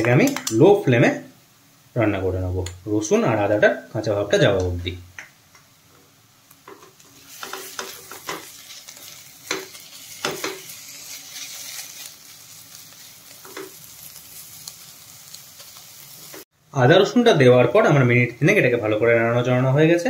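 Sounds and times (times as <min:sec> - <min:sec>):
onions sizzling in oil: 0:06.4 - 0:16.5
spatula scraping a pan: 0:07.0 - 0:14.8.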